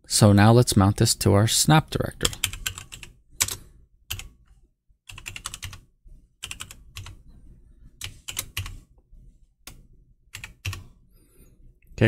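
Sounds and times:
computer keyboard typing: 2.2s - 4.4s, 5.1s - 5.8s, 6.4s - 7.2s, 8.0s - 8.8s, 9.6s - 10.9s.

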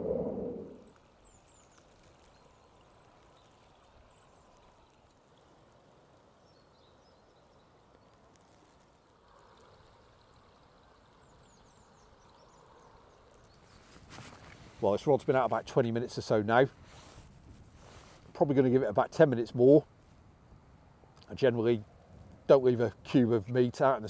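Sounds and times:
river flowing: 0.0s - 1.0s.

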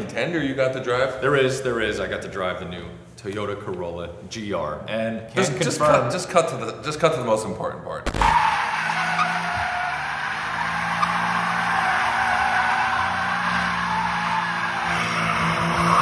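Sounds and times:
tyres squealing: 8.4s - 16.0s.

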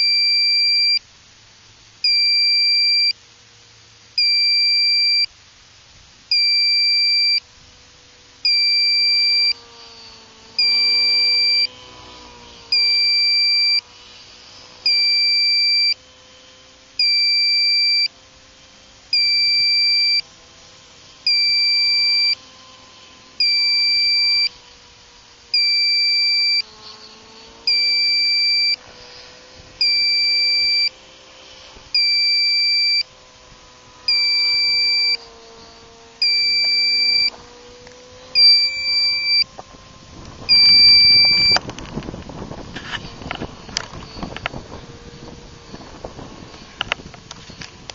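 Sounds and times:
electronic buzzer beeping: 0.0s - 1.0s, 2.0s - 3.2s, 4.2s - 5.3s, 6.3s - 7.5s, 8.4s - 13.9s, 14.7s - 16.1s, 17.0s - 18.2s, 19.1s - 20.3s, 21.2s - 22.8s, 23.4s - 24.6s, 25.5s - 27.0s, 27.6s - 28.8s, 29.8s - 31.0s, 31.9s - 33.2s, 34.0s - 35.4s, 36.2s - 37.4s, 38.3s - 39.5s, 40.5s - 41.6s
model airplane engine droning: 0.0s - 47.9s.

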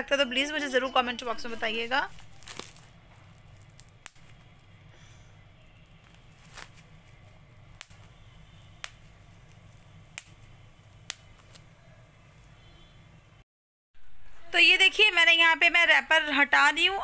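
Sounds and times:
bubble wrap popping: 1.5s - 12.6s.

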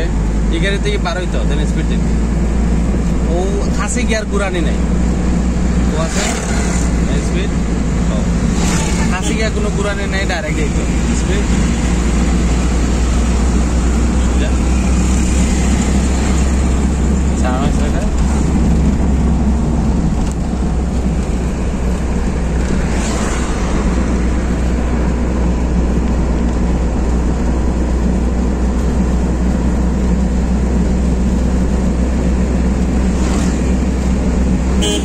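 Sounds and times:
car engine drone: 0.0s - 35.0s
road and wind noise: 0.0s - 35.0s.

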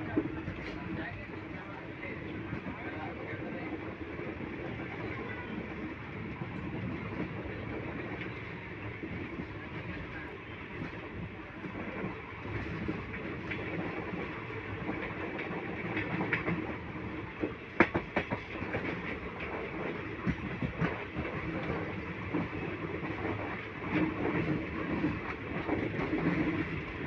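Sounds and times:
train wheels rumbling on rail: 0.0s - 27.0s
wheels clacking over rail joints: 14.9s - 27.0s.

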